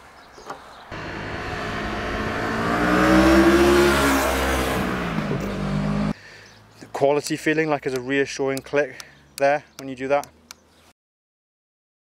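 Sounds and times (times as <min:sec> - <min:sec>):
motorcycle engine running: 0:00.9 - 0:06.1.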